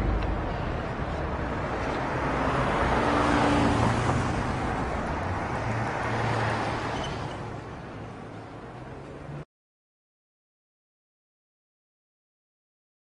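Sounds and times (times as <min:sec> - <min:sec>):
steady rushing noise: 0:00.0 - 0:06.0.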